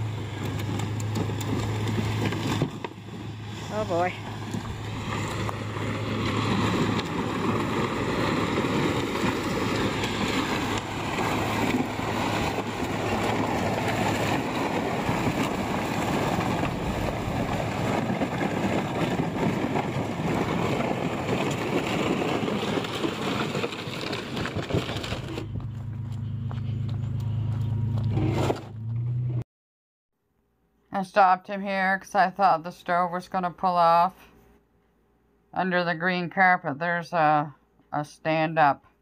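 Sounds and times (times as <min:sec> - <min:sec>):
plastic scraping over sandy dirt: 0:00.0 - 0:26.2
truck engine running: 0:00.0 - 0:29.4.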